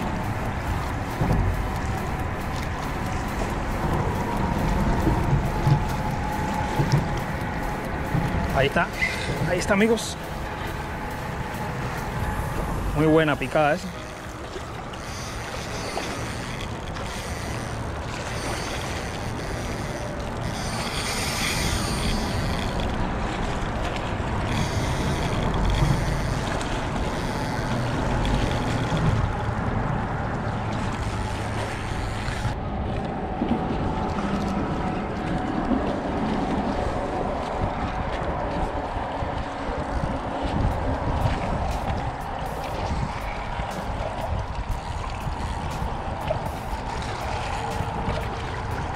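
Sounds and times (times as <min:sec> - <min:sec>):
small waves washing on rocks: 0:00.0 - 0:18.8
wind buffeting the microphone: 0:00.0 - 0:48.9.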